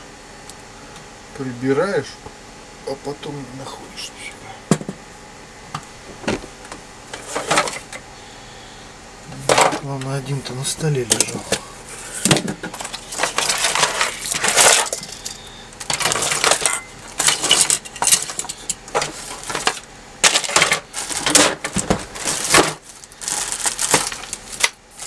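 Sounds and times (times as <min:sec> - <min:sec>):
small hard parts clinking: 0:12.7 - 0:21.6.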